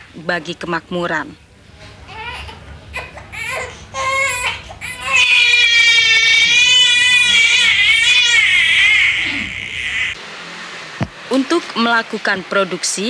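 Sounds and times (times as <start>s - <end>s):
infant crying: 2.1s - 10.2s.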